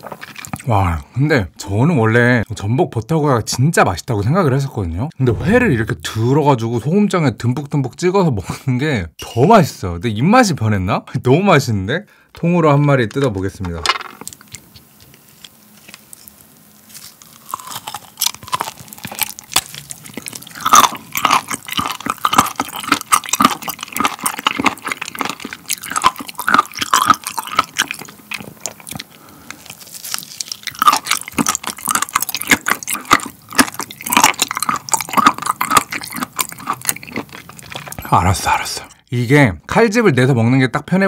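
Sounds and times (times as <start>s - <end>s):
biting and chewing: 0.0s - 0.7s, 14.1s - 38.5s.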